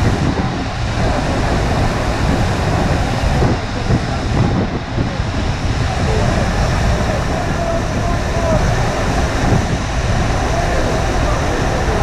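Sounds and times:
water rushing up a ramp: 0.0 - 12.0.

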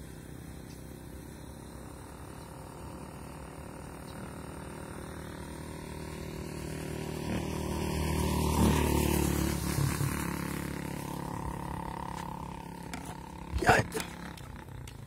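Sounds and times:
vehicle engine passing by: 3.7 - 15.0.

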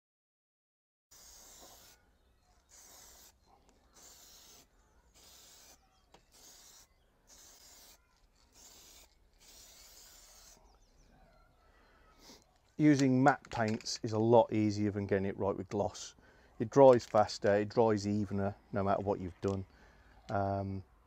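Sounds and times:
spray can hissing: 1.1 - 1.9, 2.7 - 3.4, 4.0 - 4.6, 5.2 - 8.0.

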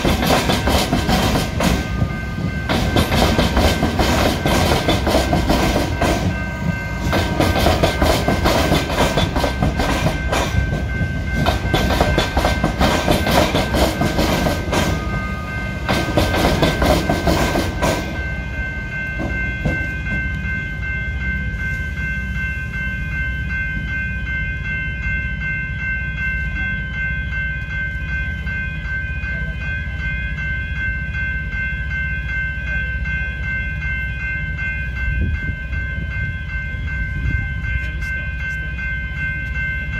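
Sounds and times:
train wheels clattering over joints: 0.0 - 18.4, 19.0 - 20.4
level crossing warning bells: 0.0 - 39.9.

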